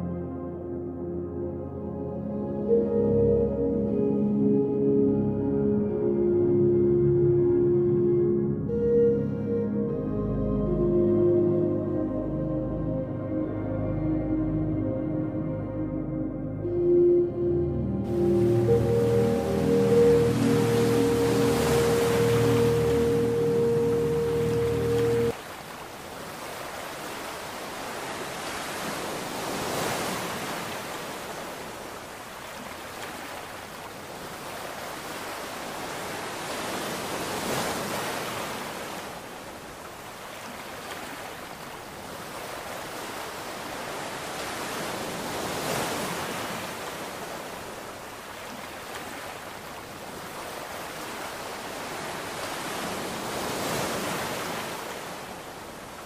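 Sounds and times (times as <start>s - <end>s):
sea waves washing in: 0.0s - 56.0s
loud steady tone: 16.6s - 25.3s.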